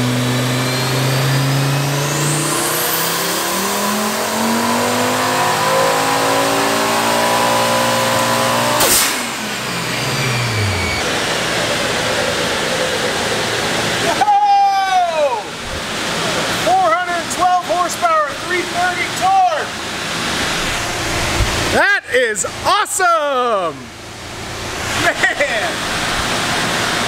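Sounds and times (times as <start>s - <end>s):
engine revving at full throttle: 0.0s - 14.2s, 18.5s - 22.8s, 23.9s - 27.0s
sharp burst as throttle shuts: 8.8s - 11.2s.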